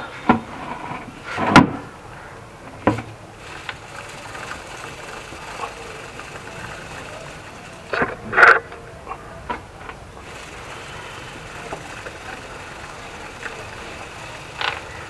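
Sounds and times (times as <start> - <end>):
chain brush knocking and rattling: 3.4 - 8.8, 9.5 - 15.0.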